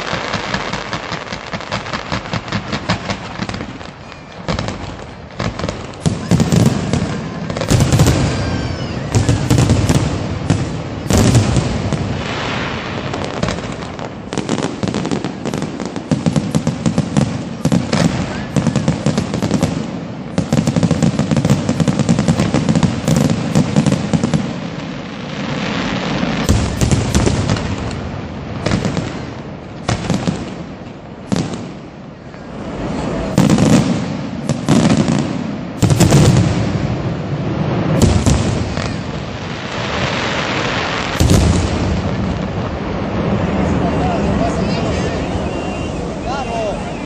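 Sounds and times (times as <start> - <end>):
fireworks crackling: 0.0 - 47.0
fireworks hissing: 0.0 - 47.0
loud firework shell bursts: 33.3 - 40.1.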